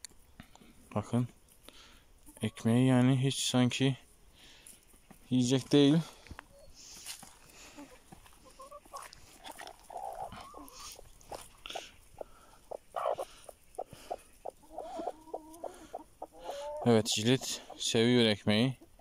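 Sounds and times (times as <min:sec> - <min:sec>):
chickens clucking: 0:01.3 - 0:19.0
chicken warbling call: 0:07.8 - 0:17.8.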